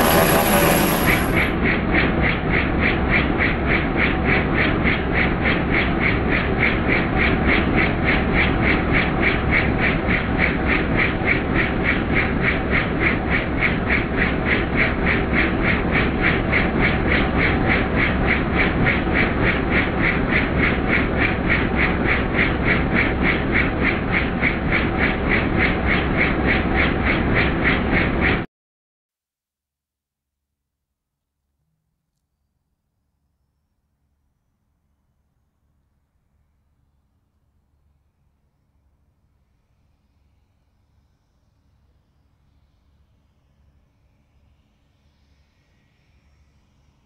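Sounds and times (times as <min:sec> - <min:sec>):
helicopter engine and rotor: 0:00.0 - 0:28.5.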